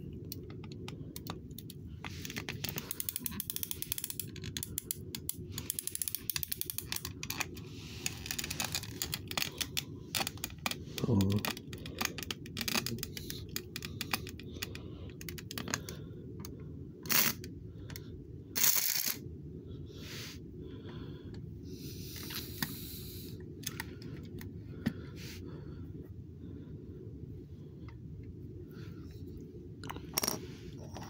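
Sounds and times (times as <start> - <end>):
low steady hum: 0.0 - 31.0.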